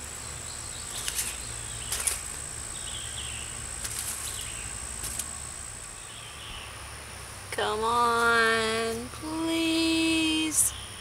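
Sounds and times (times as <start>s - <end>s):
insects droning: 0.0s - 11.0s
stick clicking in dry twigs: 0.9s - 2.3s, 3.8s - 5.4s.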